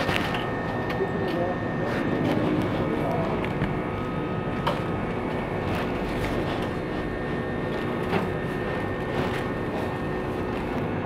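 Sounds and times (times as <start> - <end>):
low machinery hum: 0.0 - 11.0.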